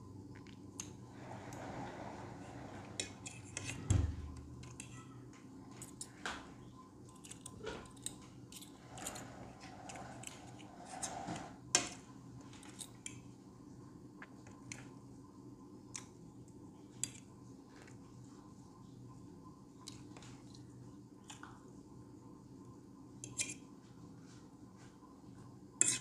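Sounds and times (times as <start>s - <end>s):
forks scraping on a plate: 8.5s - 12.0s, 25.8s - 26.0s.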